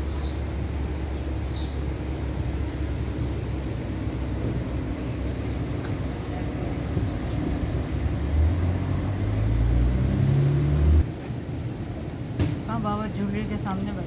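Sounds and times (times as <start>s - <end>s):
traffic rumble: 0.0s - 14.0s
engine accelerating past: 5.0s - 11.1s.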